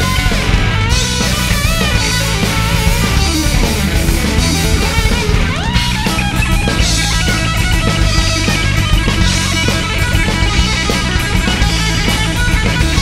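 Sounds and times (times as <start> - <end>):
guitar note sliding up: 0.0 - 8.7
rock music: 0.0 - 13.0.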